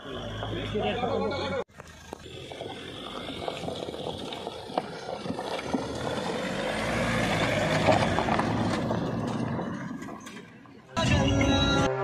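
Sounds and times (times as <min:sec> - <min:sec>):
tyres crunching over rocks: 0:01.7 - 0:10.8.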